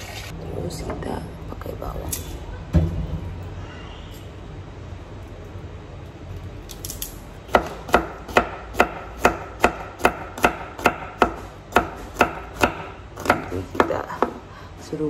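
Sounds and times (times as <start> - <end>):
knife chopping on cutting board: 7.5 - 14.4.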